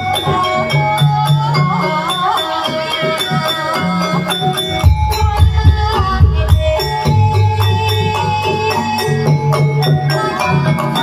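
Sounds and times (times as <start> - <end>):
even percussion strikes: 0.0 - 10.8
ringing metallophone and gong: 0.0 - 11.0
wavering melodic line: 4.6 - 8.8.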